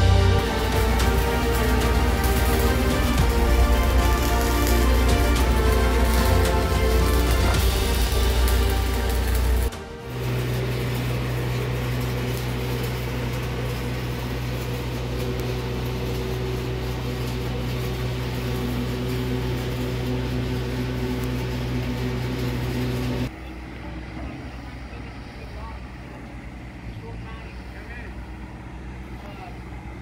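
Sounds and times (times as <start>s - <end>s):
engine running steadily: 0.0s - 30.0s.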